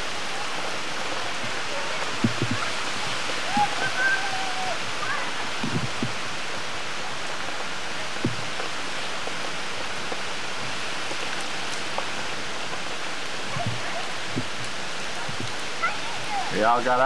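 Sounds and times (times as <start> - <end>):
heavy rain on pavement: 0.0 - 17.0
low thump: 2.2 - 2.6, 5.6 - 6.2, 8.2 - 8.6.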